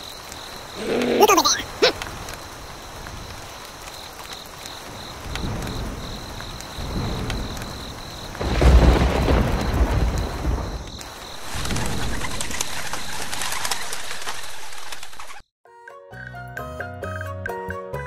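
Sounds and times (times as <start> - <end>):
steady rain: 0.0 - 15.4
thunder rolling: 4.8 - 15.0.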